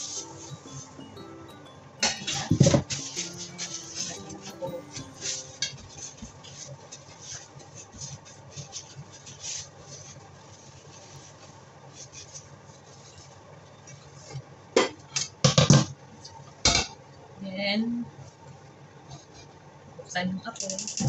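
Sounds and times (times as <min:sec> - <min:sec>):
cloth rubbing on glass stovetop: 0:05.3 - 0:14.4.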